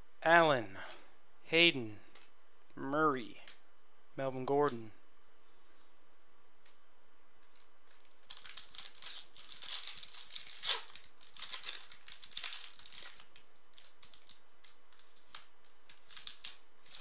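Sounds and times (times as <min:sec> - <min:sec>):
foil wrapper crinkling and tearing: 0:07.4 - 0:17.0
handling cards: 0:07.4 - 0:17.0.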